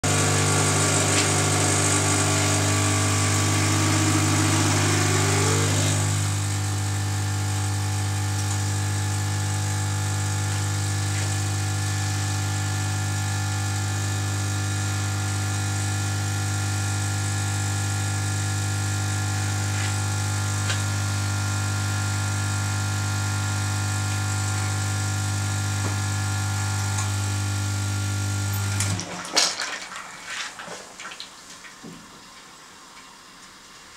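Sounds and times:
espresso machine pump humming: 0:00.0 - 0:29.0.

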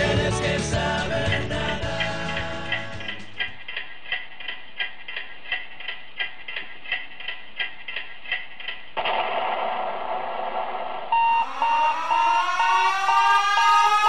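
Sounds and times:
clock ticking: 0:00.0 - 0:09.0, 0:11.2 - 0:14.0
fast electronic beeping alarm: 0:11.1 - 0:14.0
rising siren: 0:11.1 - 0:14.0.

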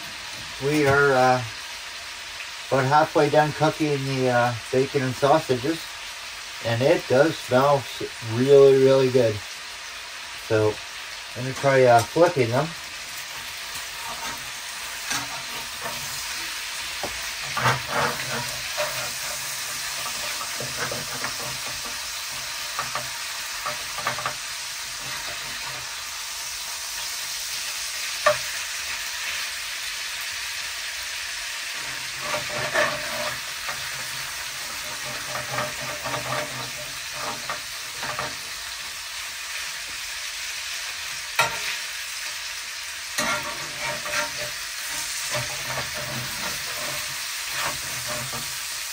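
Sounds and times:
bacon sizzling in a pan: 0:00.0 - 0:48.9
utensil scraping and clinking: 0:13.8 - 0:25.9, 0:31.8 - 0:38.5, 0:43.2 - 0:48.7.

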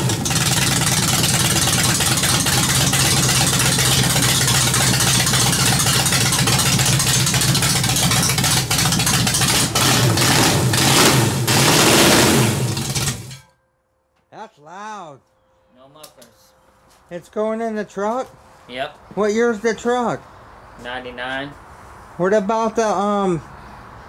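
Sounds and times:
engine fast idle: 0:00.0 - 0:10.8
engine revving: 0:00.0 - 0:13.4.

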